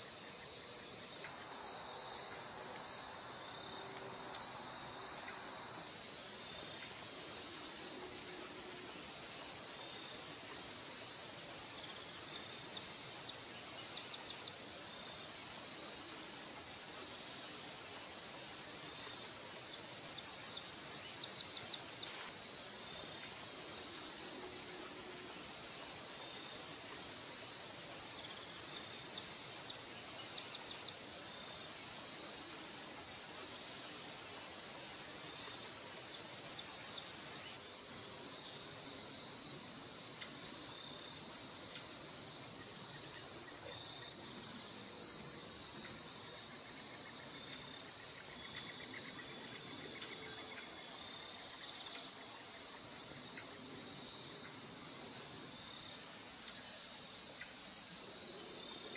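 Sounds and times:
insects trilling: 0.0s - 58.9s
loud insect chirps: 0.0s - 58.9s.

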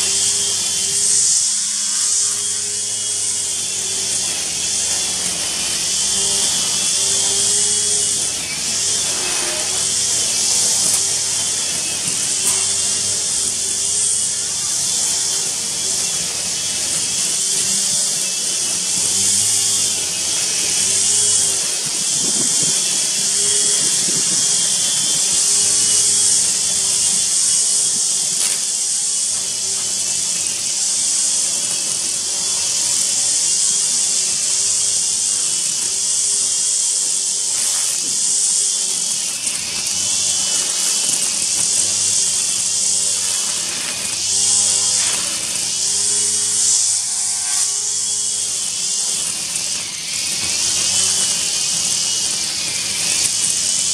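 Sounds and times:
string trimmer cutting grass: 0.0s - 53.9s.

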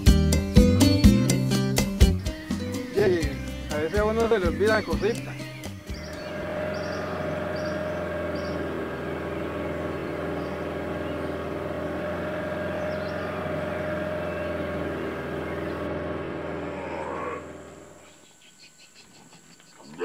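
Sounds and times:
boat motor droning: 2.9s - 18.0s.

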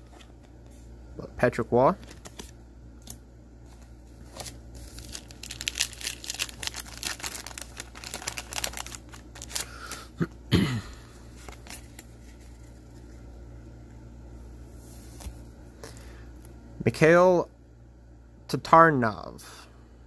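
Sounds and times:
wrapper crinkling and tearing: 4.3s - 10.1s.

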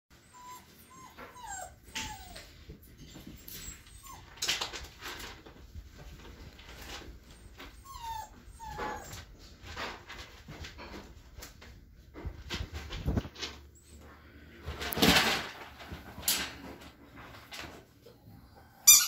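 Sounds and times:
puppies whimpering: 0.2s - 4.6s, 7.3s - 9.3s.

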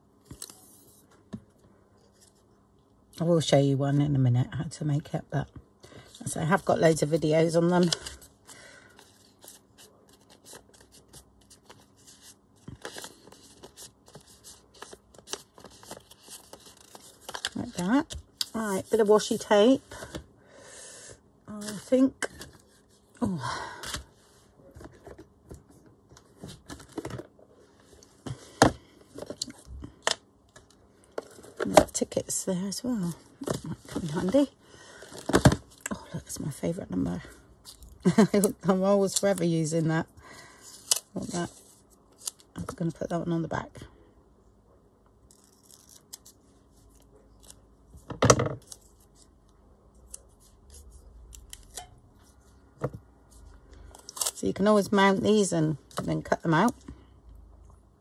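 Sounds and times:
paper rustling: 9.0s - 20.1s.

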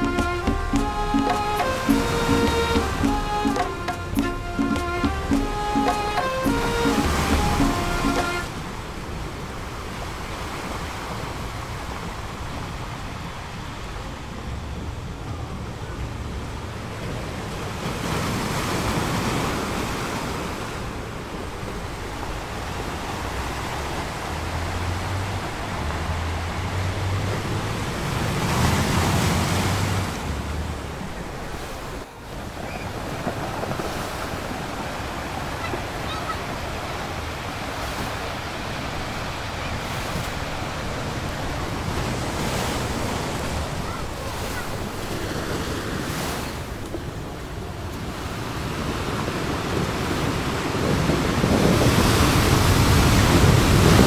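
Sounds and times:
sea waves washing onto beach: 0.0s - 54.0s
wind rumbling on microphone: 47.0s - 54.0s.

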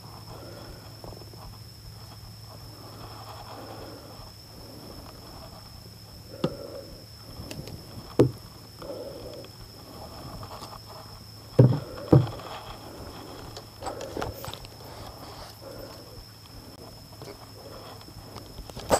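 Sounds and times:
shuffling and handling in wooden boat: 0.0s - 18.9s
steady high whine: 0.0s - 18.9s
sharp knocks on boat: 8.2s - 8.4s, 11.6s - 12.3s.

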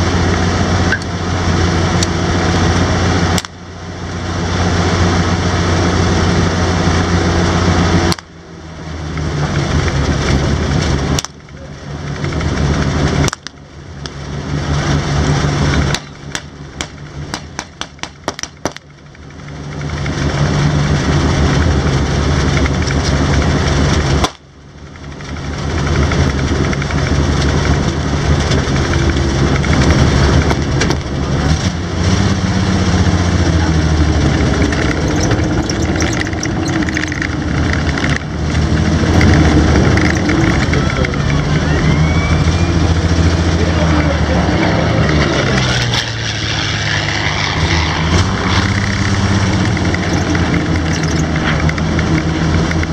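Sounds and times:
vehicle engine running: 0.0s - 52.9s
sharp clicks: 34.3s - 41.8s.

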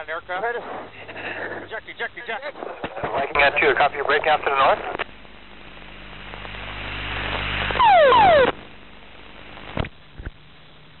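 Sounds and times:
loud blast with falling tones: 7.8s - 8.6s.

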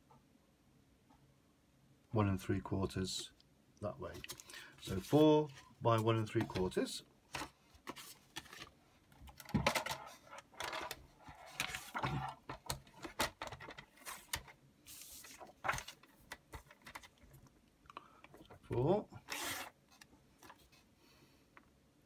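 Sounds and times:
paper rustling and sliding: 4.1s - 6.7s, 7.3s - 8.8s, 9.5s - 17.4s, 19.2s - 20.8s
plastic knocks and scrapes: 6.3s - 14.5s.

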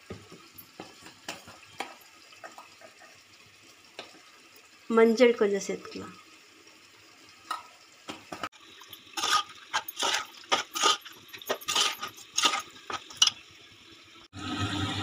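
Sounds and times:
metal ladle scraping metal pot: 9.1s - 13.4s
thick curry being stirred: 9.2s - 13.3s.

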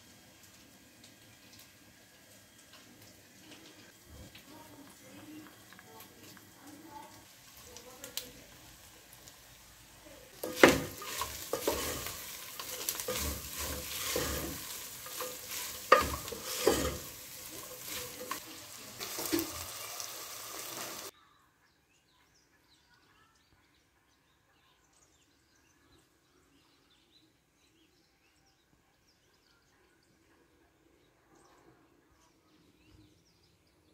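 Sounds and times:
meat sizzling in a pot: 0.0s - 21.1s
scraping and clinks against pot: 10.4s - 18.4s
faint bird chirps: 21.1s - 33.9s.

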